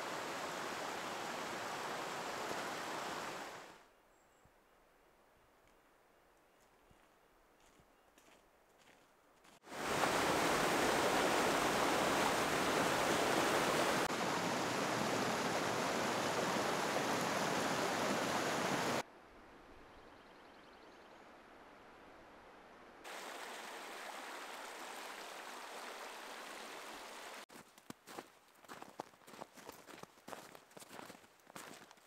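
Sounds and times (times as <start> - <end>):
creek running over rocks: 0.0 - 3.8, 9.6 - 19.0, 23.0 - 32.0.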